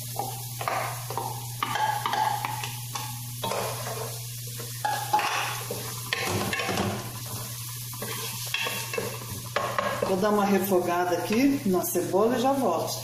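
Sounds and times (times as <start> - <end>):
onion sizzling in oil: 0.0 - 13.0
wooden spoon scraping pot: 8.0 - 10.2.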